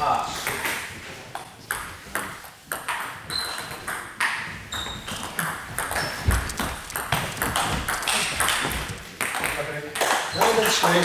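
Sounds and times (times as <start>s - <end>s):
shoe squeaks on floor: 3.2s - 9.2s, 10.2s - 11.0s
table tennis ball clicking: 5.2s - 10.1s
heavy footfall: 6.2s - 9.1s.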